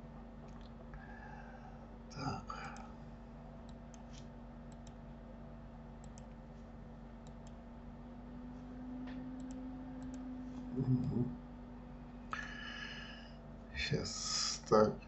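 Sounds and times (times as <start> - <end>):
low electrical hum: 0.0 - 15.0
computer mouse clicks: 3.6 - 5.0, 6.0 - 6.4, 7.2 - 7.6, 9.1 - 10.3.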